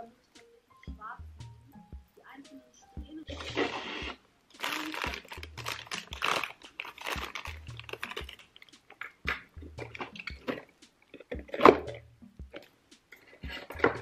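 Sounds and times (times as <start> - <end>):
background music with bass beat: 0.0 - 14.0
plastic packaging rustling: 3.3 - 12.0.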